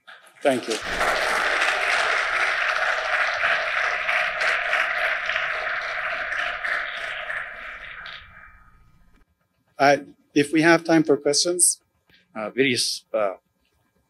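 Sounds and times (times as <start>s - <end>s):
audience applauding: 0.1s - 9.2s.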